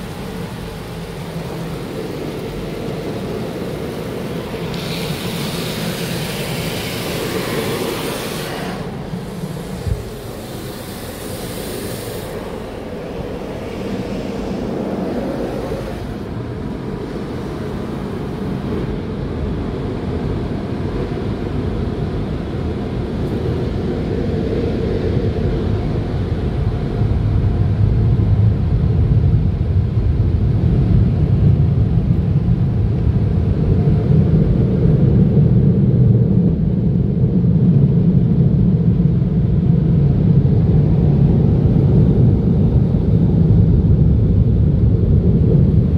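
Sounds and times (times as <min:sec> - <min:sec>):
spraying water hiss: 0:00.0 - 0:18.9
car wash machinery rumble: 0:00.0 - 0:45.9.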